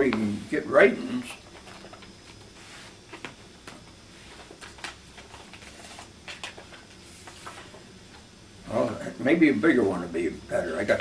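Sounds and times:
paper rustling: 4.2 - 7.8.

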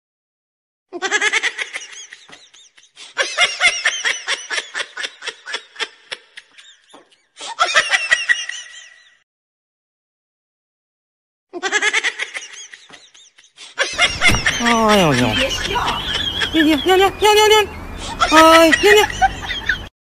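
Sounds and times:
person laughing: 11.6 - 17.2, 18.0 - 19.9.

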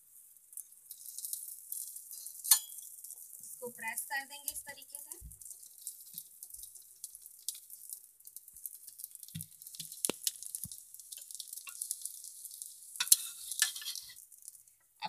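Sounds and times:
egg sizzling in oil: 0.0 - 15.0.

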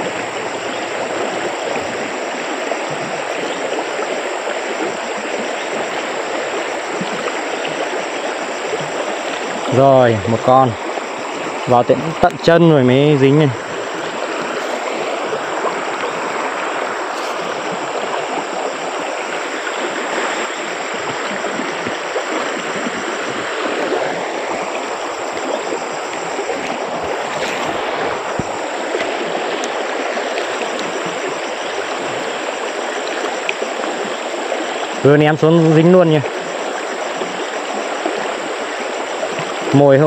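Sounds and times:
stream water rushing: 0.0 - 40.0.

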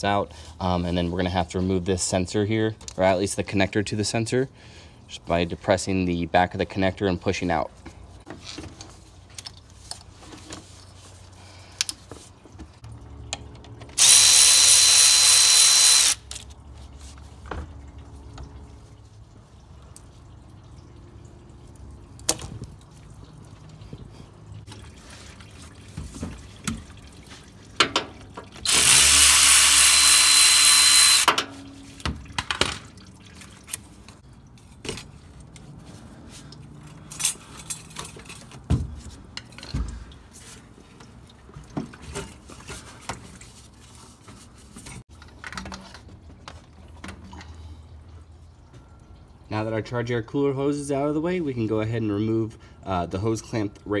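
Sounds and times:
handheld power tool spinning: 14.0 - 16.4, 28.6 - 31.4.

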